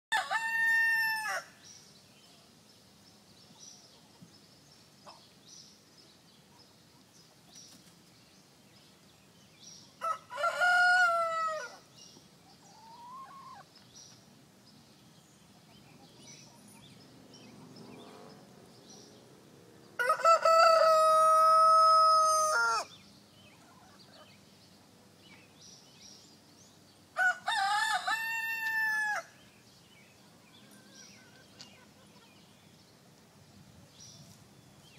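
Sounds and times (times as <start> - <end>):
rooster crowing: 0.1 - 1.5, 10.0 - 11.8, 20.0 - 22.9, 27.2 - 29.4.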